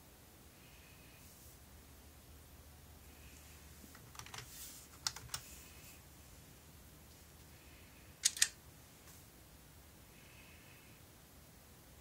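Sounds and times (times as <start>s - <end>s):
faint room noise: 0.0s - 12.0s
sharp clicks: 8.2s - 8.6s.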